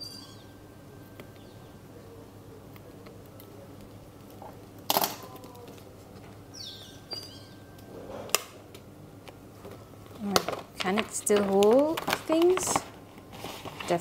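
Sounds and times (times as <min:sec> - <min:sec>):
plastic folder crinkling: 0:09.7 - 0:14.0.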